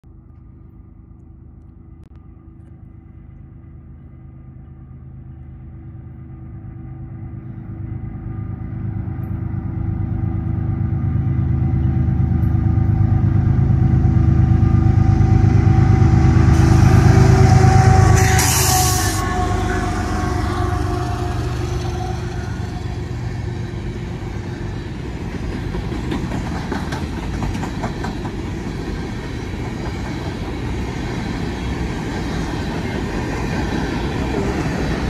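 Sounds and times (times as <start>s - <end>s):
diesel locomotive engine rumble: 0.1s - 35.0s
wheels hissing on rail: 14.4s - 35.0s.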